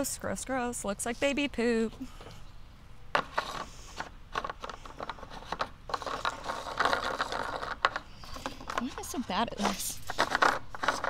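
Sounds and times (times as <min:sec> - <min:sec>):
plastic cap scraping and clicking: 0:03.2 - 0:11.0.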